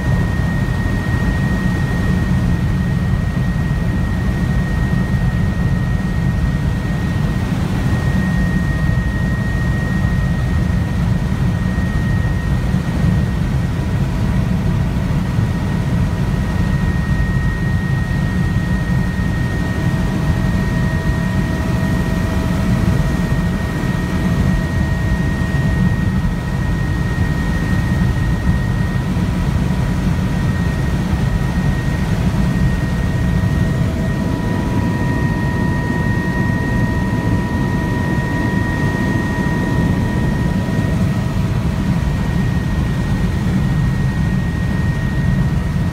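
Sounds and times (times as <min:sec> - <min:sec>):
helicopter rotor and engine drone: 0:00.0 - 0:45.9
thin high whine: 0:15.2 - 0:45.9.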